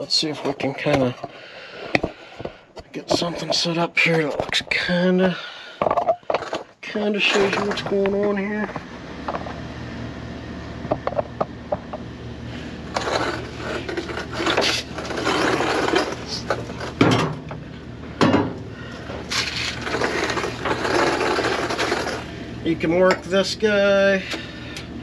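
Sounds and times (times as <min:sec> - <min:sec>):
steady low hum: 0:00.0 - 0:25.0
metal scraping and rattling: 0:05.8 - 0:08.7, 0:12.9 - 0:17.5, 0:19.2 - 0:22.3.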